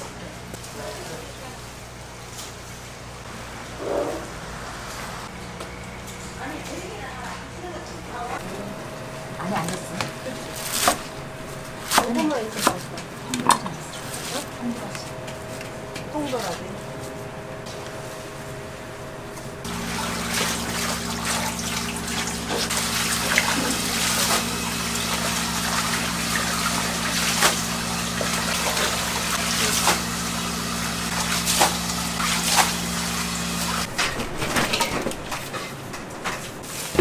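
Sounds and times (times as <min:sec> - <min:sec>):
steady low hum: 0:00.0 - 0:36.8
running water pouring over leaves: 0:19.7 - 0:33.9.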